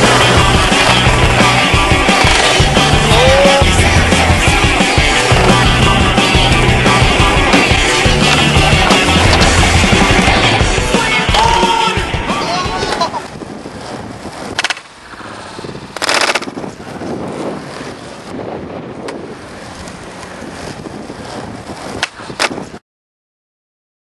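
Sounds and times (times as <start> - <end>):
skateboard popping and landing clacks: 0.0 - 2.7, 5.0 - 6.5, 22.0 - 22.7
punk rock music: 0.0 - 13.2
skateboard rolling on concrete: 0.0 - 22.8.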